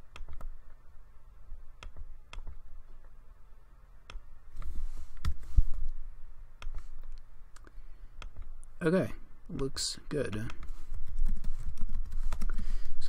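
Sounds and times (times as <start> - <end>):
mouse and keyboard clicks: 6.6 - 8.5.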